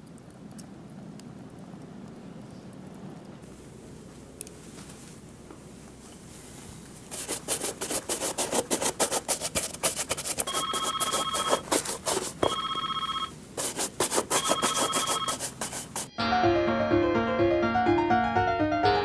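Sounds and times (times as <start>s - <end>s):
rubbing strokes on leather shoe: 6.4s - 12.6s, 13.6s - 16.1s
telephone ringing: 10.5s - 11.7s, 12.3s - 13.4s, 14.3s - 15.6s.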